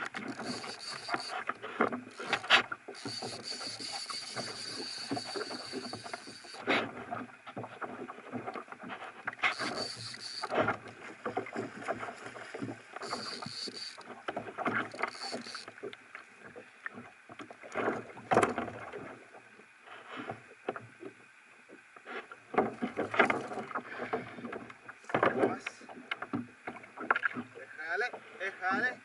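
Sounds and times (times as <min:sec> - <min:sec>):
fish splashing: 0:00.0 - 0:06.7, 0:09.3 - 0:15.9
fishing reel drag buzzing: 0:00.0 - 0:06.7, 0:09.4 - 0:10.8, 0:12.9 - 0:15.9
reel and rod clicks: 0:00.0 - 0:18.9
water slapping against kayak: 0:00.0 - 0:19.4, 0:22.4 - 0:28.9.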